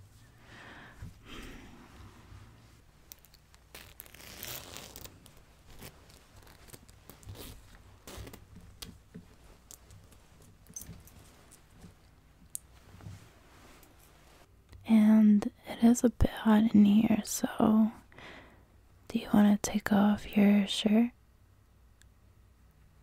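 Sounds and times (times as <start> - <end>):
clothing fabric rustling: 0.0 - 14.5.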